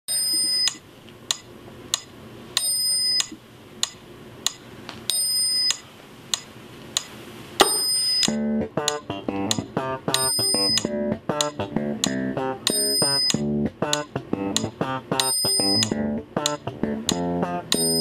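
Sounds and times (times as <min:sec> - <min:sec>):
phone alarm bell-like ring: 0:00.1 - 0:00.8, 0:02.6 - 0:03.3, 0:05.1 - 0:05.8, 0:07.6 - 0:08.3, 0:10.2 - 0:10.8, 0:12.7 - 0:13.4, 0:15.2 - 0:16.0, 0:17.7 - 0:18.0
clock-like ticking: 0:07.9 - 0:18.0
plucked bass guitar notes: 0:08.3 - 0:18.0.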